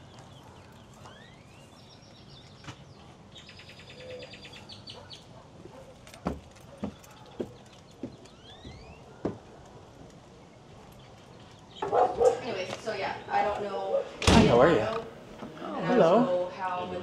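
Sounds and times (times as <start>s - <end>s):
birds chirping and trilling: 0.0s - 14.2s
footsteps on wooden stairs: 6.0s - 9.6s.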